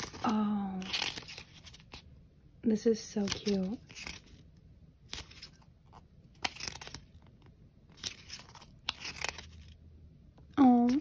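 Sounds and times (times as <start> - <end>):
paper pages rustling: 0.0 - 2.1, 3.2 - 9.8.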